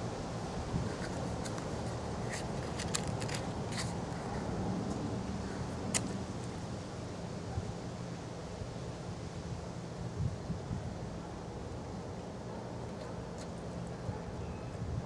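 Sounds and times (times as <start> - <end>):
wind rumbling on microphone: 0.0 - 6.8, 10.0 - 11.4, 14.0 - 15.0.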